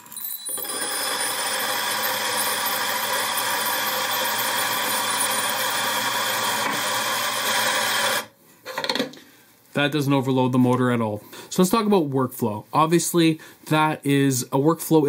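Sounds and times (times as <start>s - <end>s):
coffee beans grinding: 0.0s - 8.3s
coffee grinder motor whine: 0.5s - 8.3s.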